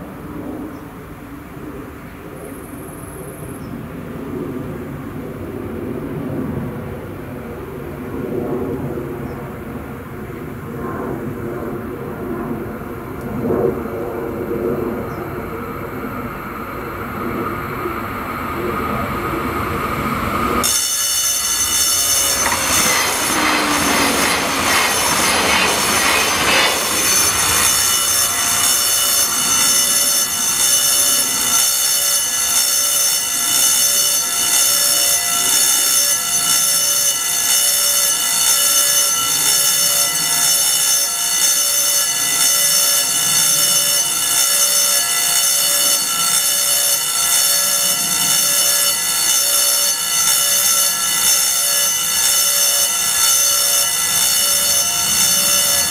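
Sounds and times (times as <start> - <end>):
level crossing warning bell: 20.6 - 55.9.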